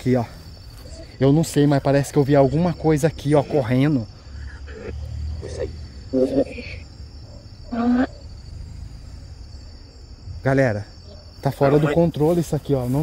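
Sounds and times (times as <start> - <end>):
crickets chirring: 0.0 - 13.0
radio scanning voice fragments: 11.6 - 12.3.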